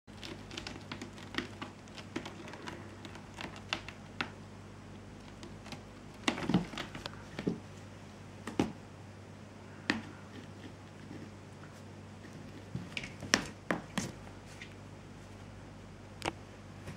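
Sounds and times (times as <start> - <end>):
cat claws scratching rope post: 0.1 - 4.2.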